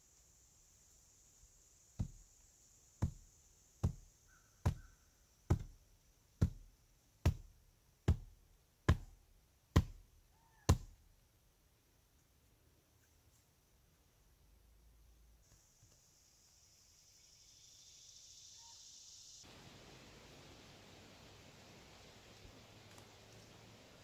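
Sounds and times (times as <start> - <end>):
rock thudding on wooden post: 3.8 - 4.9, 5.5 - 5.8, 6.4 - 7.5, 8.1 - 10.0.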